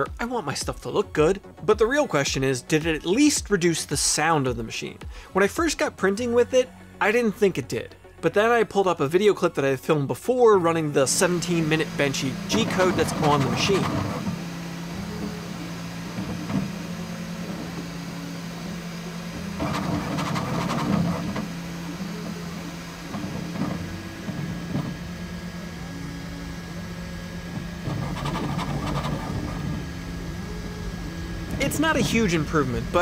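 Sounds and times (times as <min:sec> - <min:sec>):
three d printer motor hum: 0:11.1 - 0:33.0.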